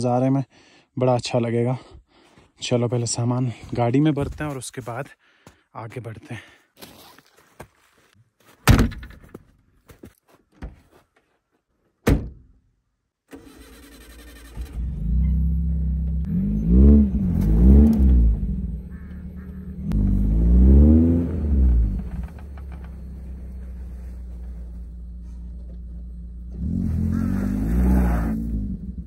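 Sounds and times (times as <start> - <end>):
sharp thuds: 8.6 - 9.5
car engine starting and revving: 13.3 - 29.0.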